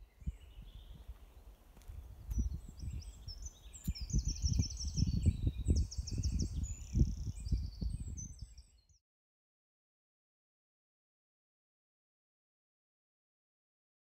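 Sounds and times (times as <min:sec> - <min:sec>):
wind buffeting microphone: 0:00.0 - 0:08.9
small birds chirping: 0:00.0 - 0:09.0.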